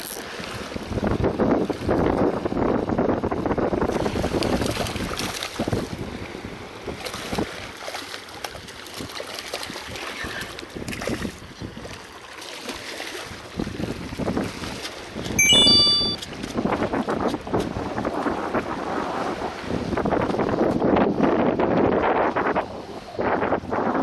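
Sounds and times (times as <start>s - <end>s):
wind buffeting microphone: 0.6s - 7.6s, 13.4s - 15.4s, 16.3s - 24.0s
waves splashing against rocks: 3.7s - 15.4s.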